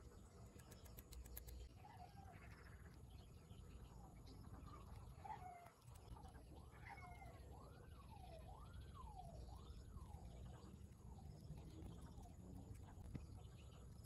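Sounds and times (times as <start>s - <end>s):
low steady hum: 0.0s - 14.0s
faint animal calls: 4.6s - 8.4s.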